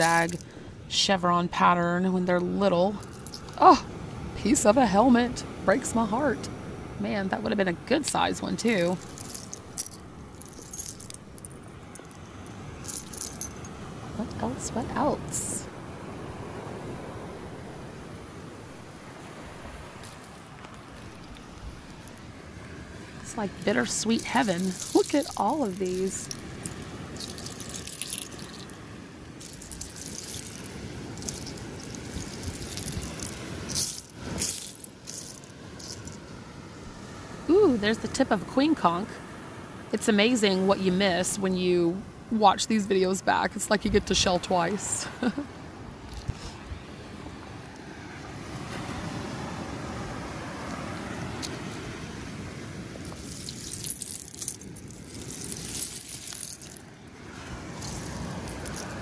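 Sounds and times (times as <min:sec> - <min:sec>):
shells clattering: 0:00.0 - 0:00.4, 0:03.0 - 0:03.6, 0:08.8 - 0:13.7, 0:23.6 - 0:28.8, 0:29.4 - 0:36.2, 0:53.0 - 0:57.0, 0:57.8 - 0:59.0
seashells clinking and rattling: 0:00.0 - 0:00.5, 0:02.9 - 0:03.7, 0:08.0 - 0:13.8, 0:20.0 - 0:22.2, 0:23.3 - 0:28.8, 0:29.4 - 0:36.2, 0:53.0 - 0:57.0, 0:57.8 - 0:59.0
wind: 0:00.0 - 0:59.0.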